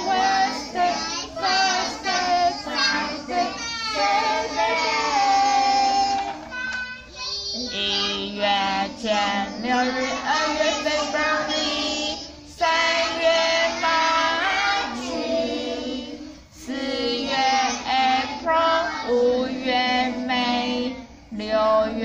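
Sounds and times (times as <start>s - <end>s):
children singing together: 0.0s - 22.0s
woman singing: 7.6s - 15.1s, 15.7s - 22.0s.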